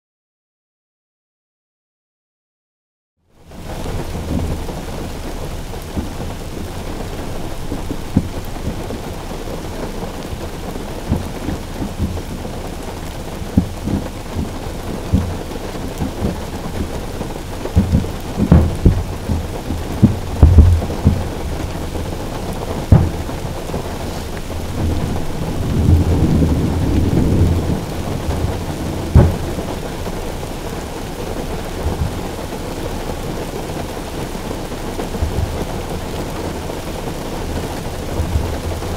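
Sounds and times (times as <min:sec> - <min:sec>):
rain beating on car roof: 0:03.2 - 0:38.9
rolling thunder: 0:03.6 - 0:32.6
fireworks booms: 0:16.0 - 0:29.9.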